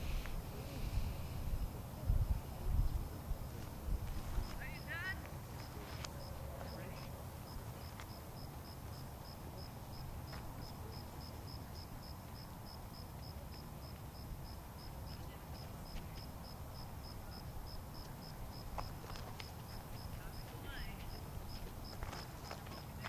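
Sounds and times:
low wind rumble: 0.0 - 12.4
cricket chirping: 0.0 - 23.0.

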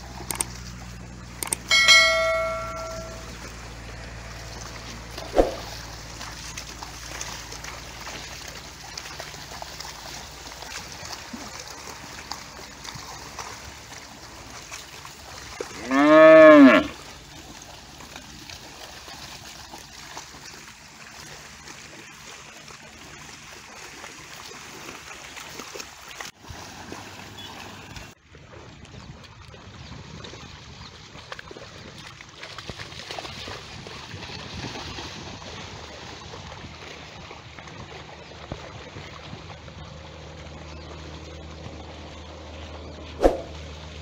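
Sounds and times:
water buffalo mooing: 15.8 - 17.0.

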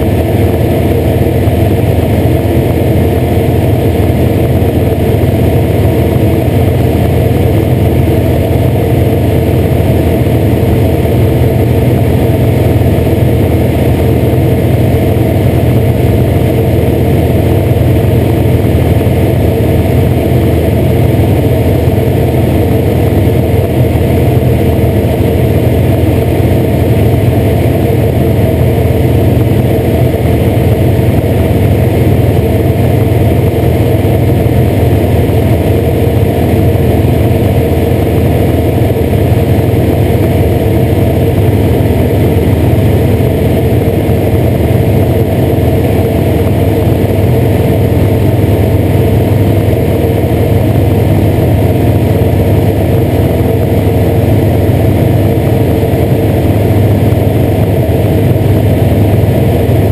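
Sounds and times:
propeller aircraft engine: 0.0 - 59.9.

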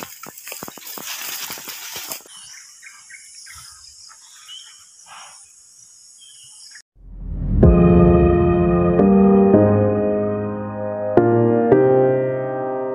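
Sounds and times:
dry leaves crackling underfoot: 0.0 - 3.7
high insect drone: 0.7 - 6.8.

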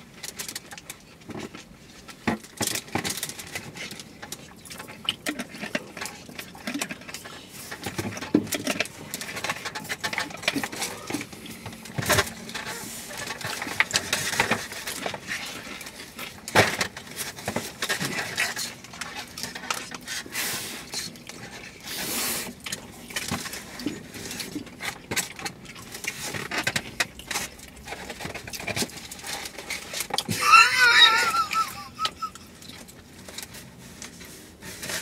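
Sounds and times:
utensils scraping food containers: 1.3 - 35.0
chewing: 17.1 - 34.2.

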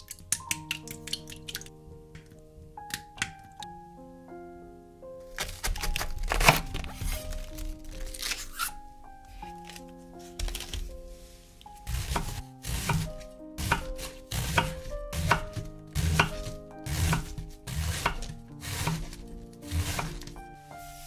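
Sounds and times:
knife slicing cabbage: 5.3 - 8.8, 11.9 - 20.4.

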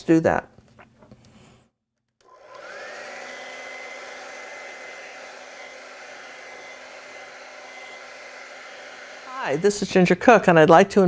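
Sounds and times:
hair dryer blowing: 2.2 - 10.2.

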